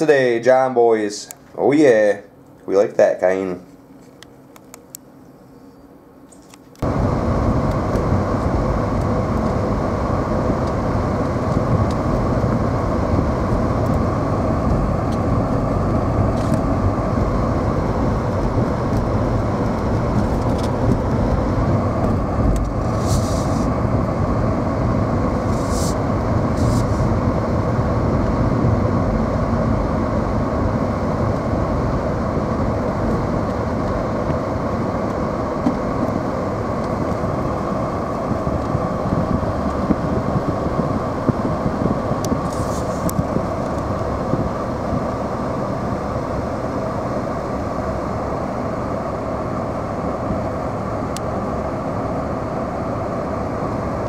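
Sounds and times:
car engine and tyre noise: 0:06.4 - 0:54.0
short hissing bursts: 0:22.9 - 0:23.7, 0:25.4 - 0:27.1, 0:42.5 - 0:43.1.

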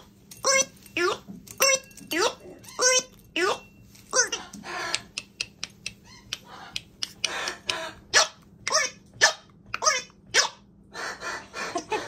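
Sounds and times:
macaws squawking: 0:04.2 - 0:12.0.

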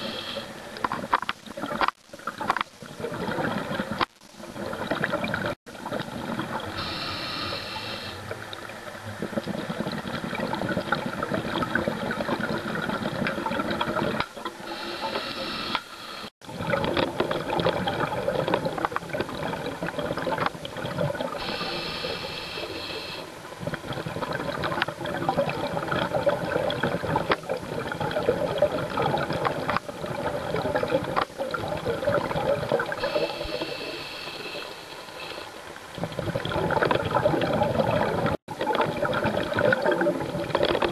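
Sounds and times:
hissing regulator inhales: 0:00.0 - 0:00.6, 0:06.8 - 0:08.2, 0:14.7 - 0:16.3, 0:21.4 - 0:23.3, 0:33.0 - 0:35.5
bubbling exhaled air: 0:01.6 - 0:40.9.

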